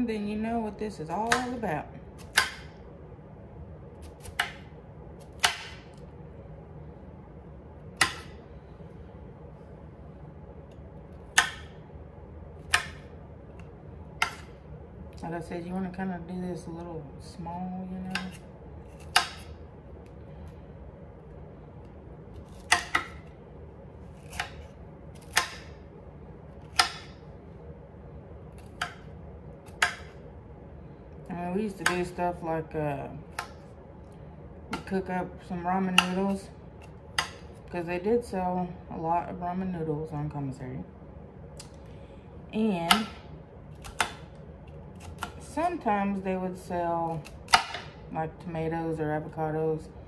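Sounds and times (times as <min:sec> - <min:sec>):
knife chopping on stone board: 0:02.2 - 0:02.7, 0:05.3 - 0:05.9, 0:08.0 - 0:08.3, 0:14.2 - 0:14.5, 0:18.1 - 0:19.5, 0:22.5 - 0:23.3, 0:24.2 - 0:25.8, 0:26.6 - 0:27.2, 0:29.7 - 0:30.2, 0:37.2 - 0:37.5, 0:47.2 - 0:48.0.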